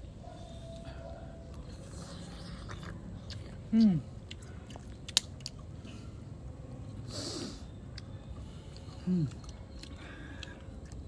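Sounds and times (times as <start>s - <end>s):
person chewing: 1.5s - 6.0s, 8.7s - 11.0s.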